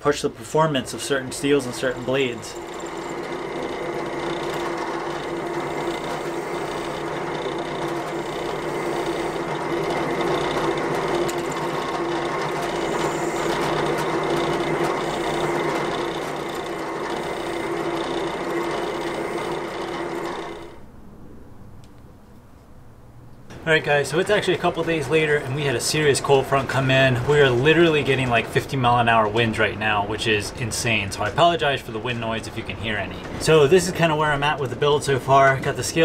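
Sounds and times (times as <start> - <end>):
drill press motor hum: 1.0 - 20.9.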